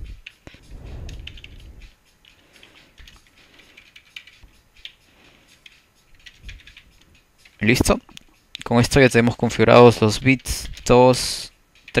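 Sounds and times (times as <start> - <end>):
low rumble: 0.6 - 2.0
keyboard keys clicking: 1.1 - 1.6, 2.2 - 5.0, 5.6 - 7.9.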